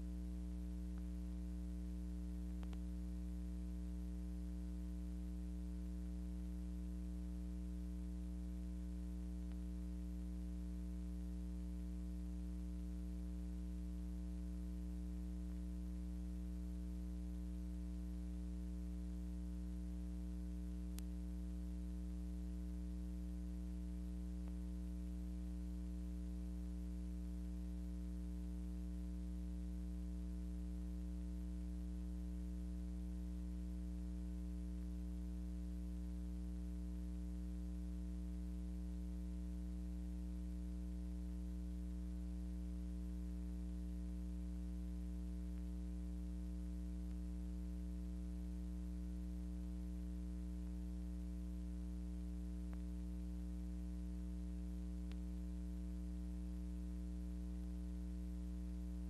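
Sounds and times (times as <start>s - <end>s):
faint ticks: 0.0s - 5.0s, 5.6s - 29.2s, 43.2s - 48.4s, 52.2s - 55.5s
faint hiss: 0.0s - 29.2s
electrical mains hum: 0.0s - 59.0s.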